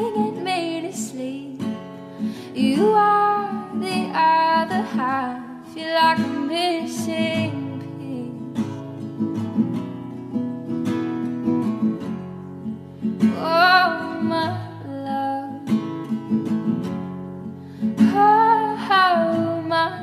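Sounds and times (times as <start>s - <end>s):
acoustic guitar picking: 0.0s - 20.0s
person singing: 2.5s - 8.6s.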